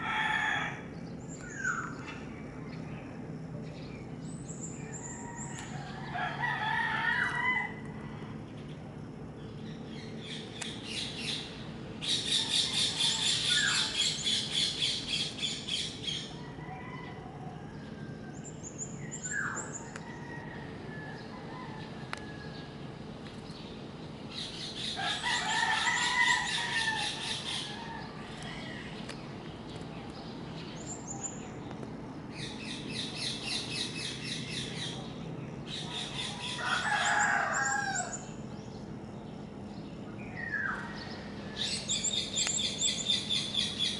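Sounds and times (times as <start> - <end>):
roosters crowing: 0.0 - 2.0, 4.6 - 9.3, 10.9 - 23.2, 23.8 - 29.1, 35.6 - 39.0, 40.2 - 43.9
faint steady hum: 0.0 - 43.9.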